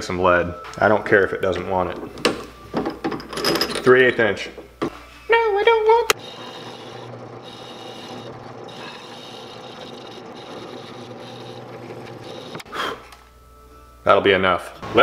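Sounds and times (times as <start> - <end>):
drill press motor hum: 6.1 - 12.7
drill bit scraping wood: 6.2 - 12.7.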